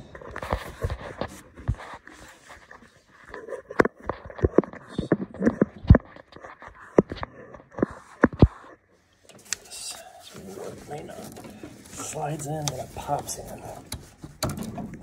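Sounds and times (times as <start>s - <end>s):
metal clicks and knocks: 13.9s - 15.0s.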